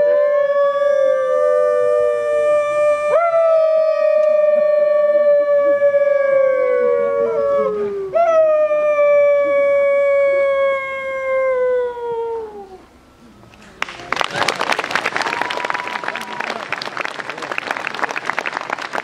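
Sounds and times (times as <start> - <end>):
people howling like wolves: 0.0 - 12.9.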